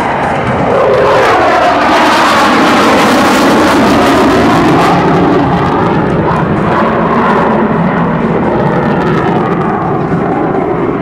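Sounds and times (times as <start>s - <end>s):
fighter jet passing: 0.0s - 11.0s.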